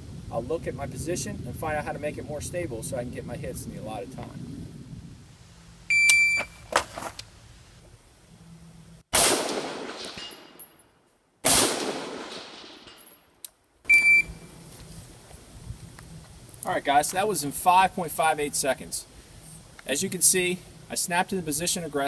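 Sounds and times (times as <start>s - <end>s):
shot timer beep: 5.9s - 6.6s, 13.9s - 14.4s
rifle shots with echo: 9.1s - 10.6s, 11.4s - 13.0s.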